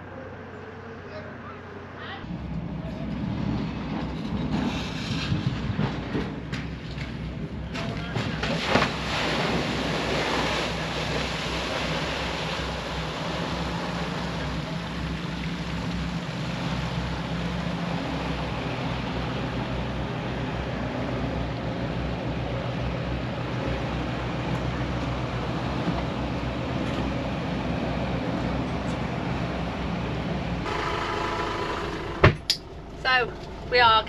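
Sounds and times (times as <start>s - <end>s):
boat engines running: 5.4s - 34.0s
boat hitting water with splash: 7.6s - 18.5s
rushing spray: 8.5s - 18.4s.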